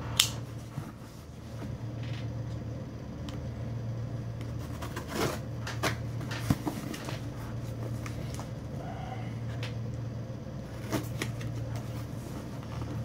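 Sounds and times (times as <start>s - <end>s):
steady low hum: 0.0s - 13.0s
cardboard box rustling and scraping: 4.5s - 8.4s, 10.7s - 13.0s.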